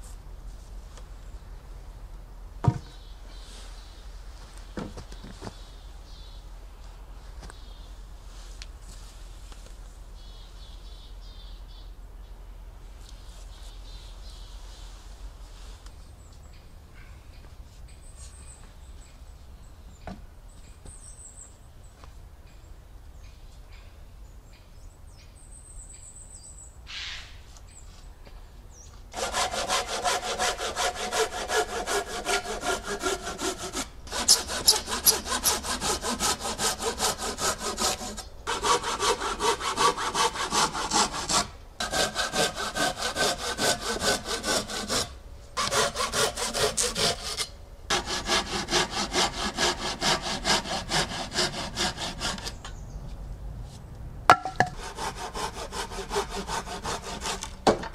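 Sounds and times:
light knocks: 0:02.6 - 0:03.0
hand saw cutting wood: 0:29.2 - 0:52.6, 0:54.3 - 0:57.8.

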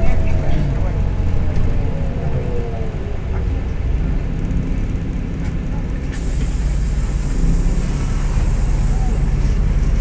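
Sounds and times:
bus engine and road rumble: 0:00.0 - 0:10.0.

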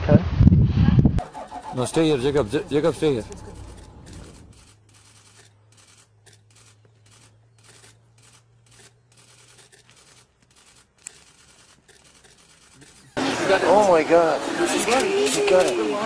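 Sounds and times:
low steady hum: 0:01.1 - 0:04.6
faint rustling and scratching: 0:03.1 - 0:13.2.

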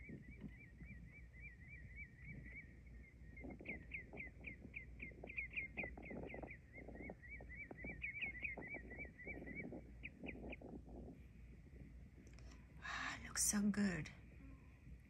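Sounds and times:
small bird chirping: 0:00.0 - 0:14.7
soft knocks and crackles: 0:03.4 - 0:12.7.

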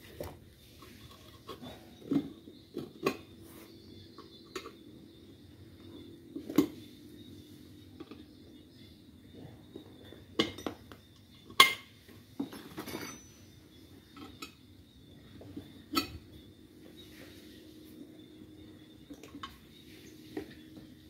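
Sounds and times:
tyre levers clinking on wheel rim: 0:10.4 - 0:14.6.

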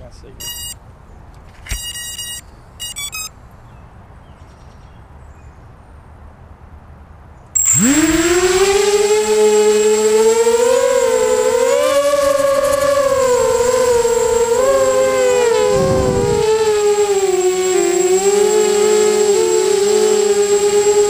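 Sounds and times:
short electronic beeps: 0:00.4 - 0:00.8, 0:01.7 - 0:03.4, 0:07.6 - 0:07.9
drone motors whining: 0:07.6 - 0:21.0.

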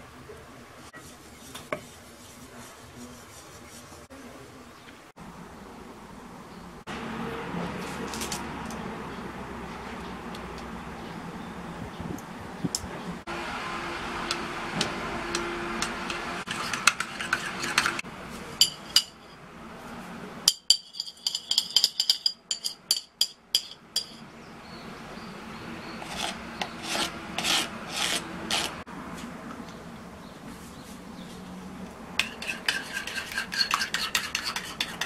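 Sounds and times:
spoon scraping thick filling: 0:01.0 - 0:04.1, 0:16.1 - 0:18.0, 0:25.9 - 0:28.8, 0:32.2 - 0:35.0
spoon clinking against bowl: 0:18.6 - 0:19.2, 0:20.5 - 0:24.2.

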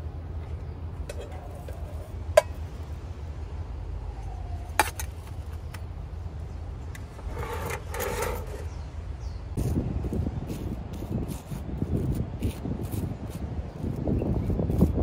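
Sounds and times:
scraping and handling noise: 0:00.4 - 0:02.7, 0:07.0 - 0:08.8.

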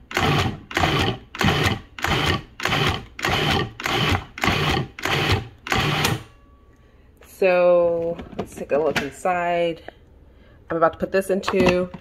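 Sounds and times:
food processor pulsing: 0:00.0 - 0:06.2.

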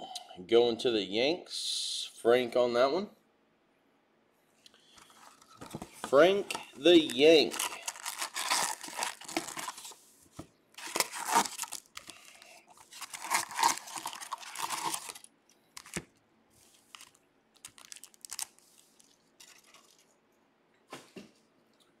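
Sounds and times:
foil packs crinkling: 0:05.0 - 0:10.0, 0:10.8 - 0:16.1, 0:16.8 - 0:20.0.

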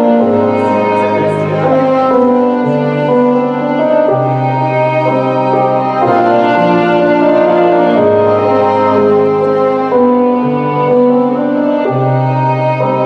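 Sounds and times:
slow instrumental music: 0:00.0 - 0:13.0.

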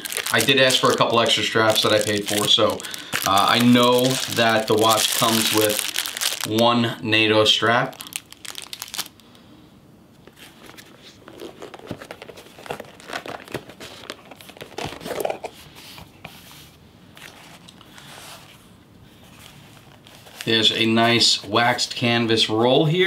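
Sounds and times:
plastic sleeve crinkling: 0:00.0 - 0:09.4, 0:10.3 - 0:15.5.

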